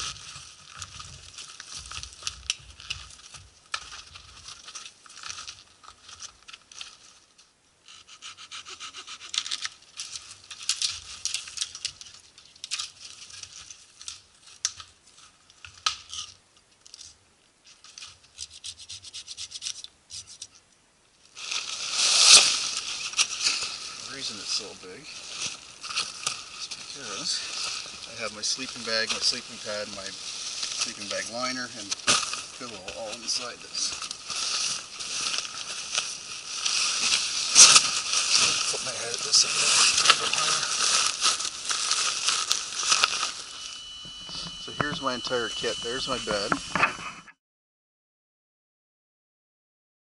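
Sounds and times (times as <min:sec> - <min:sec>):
fabric rustling: 0:21.4 - 0:44.6
snowshoes crunching in snow: 0:21.4 - 0:46.5.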